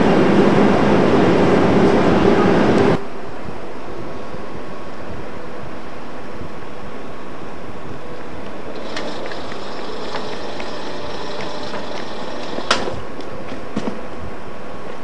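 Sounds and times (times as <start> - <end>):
distant train rumble: 0.0 - 15.0
faint high whine: 0.9 - 13.4
sharp clicks: 8.8 - 13.0.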